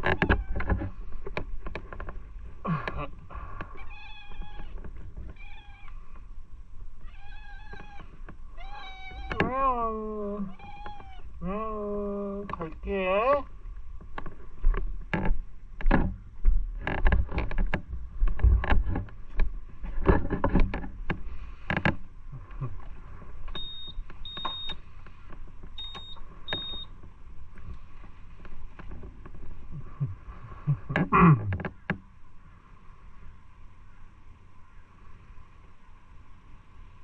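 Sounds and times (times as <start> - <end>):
knocks and rustles of handling: 0.0 - 3.0, 3.6 - 6.3, 13.8 - 32.1.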